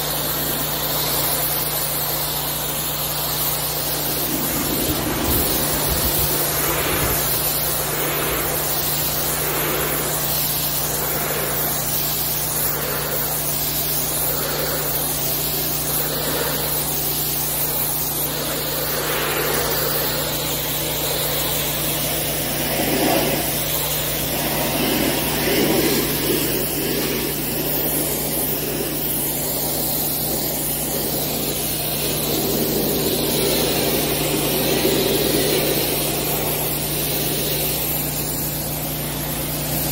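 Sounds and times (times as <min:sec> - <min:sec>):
pressure washer jet hissing on concrete: 0:00.0 - 0:39.9.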